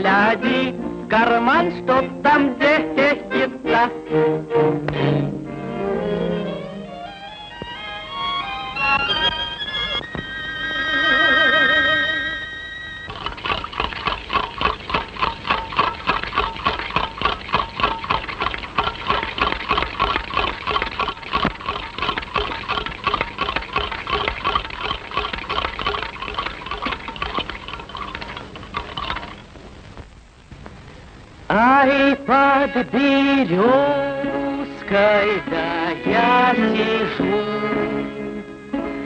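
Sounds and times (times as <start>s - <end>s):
orchestral strings: 3.2s - 13.0s.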